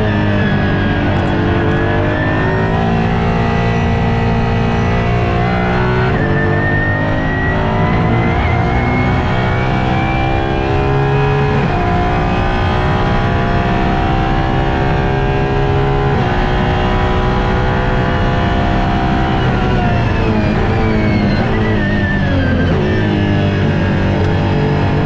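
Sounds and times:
engine revving through gears: 0.0s - 25.0s.

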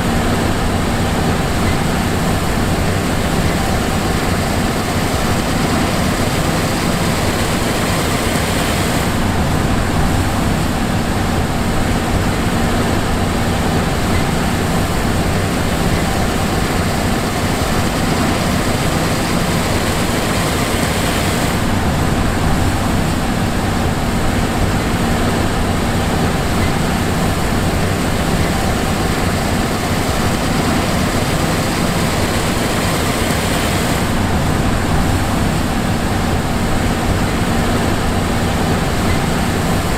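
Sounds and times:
combine harvester engine drone: 0.0s - 39.9s.

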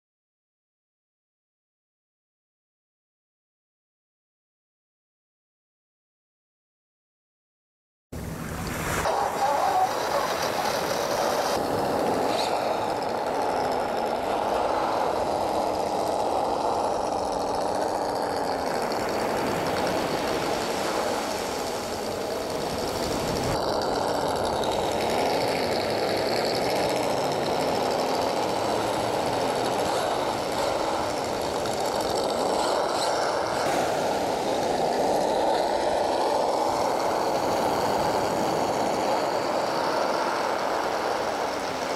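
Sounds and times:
toy truck motor drone: 8.2s - 41.9s.

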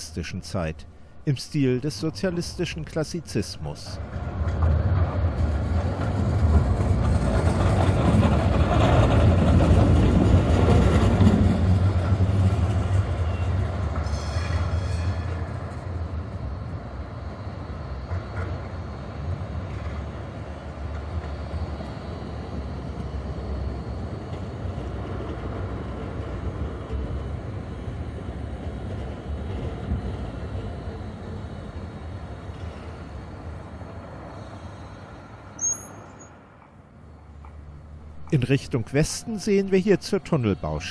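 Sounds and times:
tram rumbling past: 0.0s - 40.9s
high squeal of tram: 5.1s - 16.3s, 29.6s - 38.0s.

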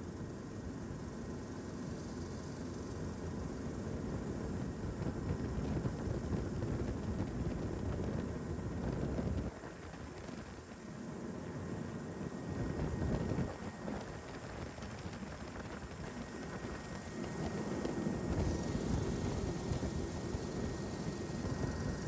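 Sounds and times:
aircraft rumble: 3.0s - 22.0s
wind noise: 4.0s - 10.8s, 12.2s - 22.0s.

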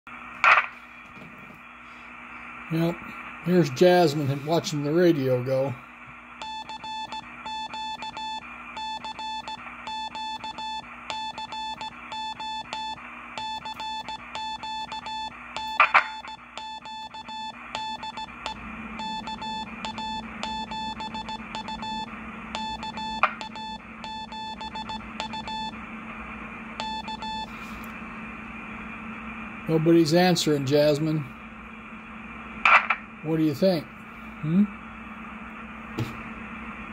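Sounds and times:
low hum: 0.1s - 36.9s
morse code beeping: 6.4s - 25.8s, 26.8s - 27.6s.

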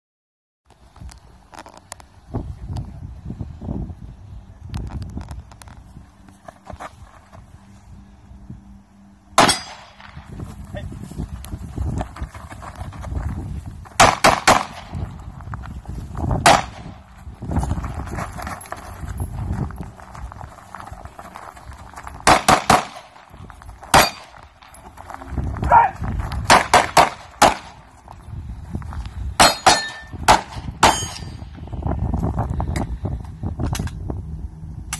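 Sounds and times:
pistol shots: 9.4s - 10.2s, 14.0s - 14.9s, 22.2s - 23.2s, 23.9s - 24.3s, 26.5s - 27.8s
metallic ringing: 30.8s - 31.5s.

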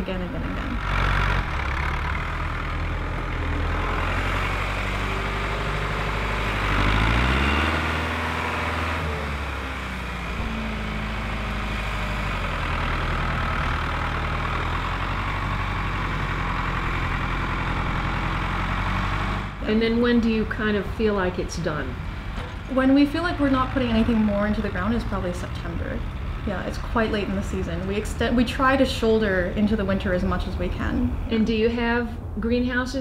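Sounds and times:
tractor diesel engine under load: 0.0s - 33.0s.

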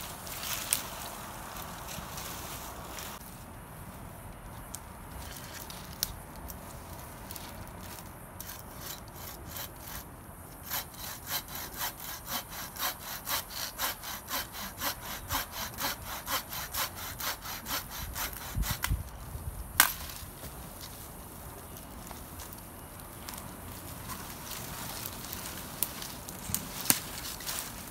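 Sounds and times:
saw rasping through branch: 8.4s - 19.0s.

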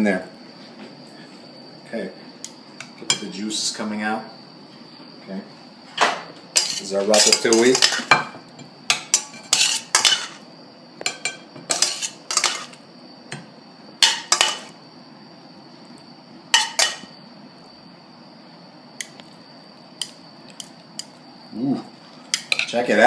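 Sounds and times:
metal spoon scraping a pan: 6.6s - 8.1s, 8.9s - 10.4s, 11.1s - 12.8s.

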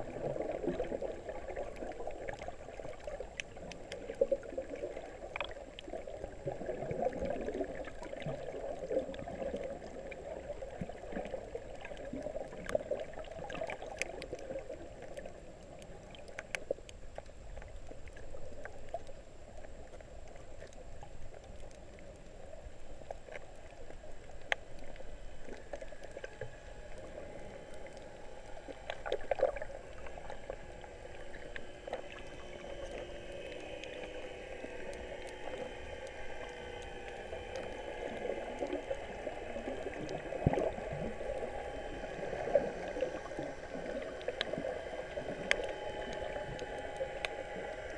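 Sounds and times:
faint steady hum: 0.0s - 47.9s
underwater water gurgling: 0.0s - 47.9s.

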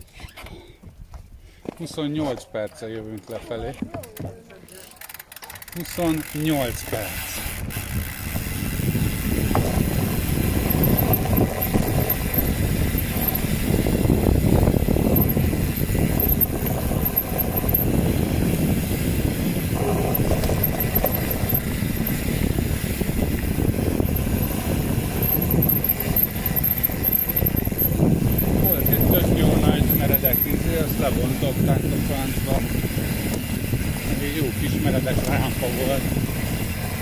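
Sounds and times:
mountain bike rumbling and rattling: 2.0s - 37.0s
wind buffeting microphone: 6.7s - 37.0s.

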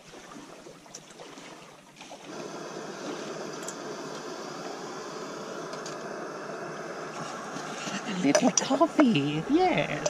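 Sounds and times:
gas burner burning steadily: 2.2s - 10.0s
gas stove burner lighting: 2.4s - 10.0s.

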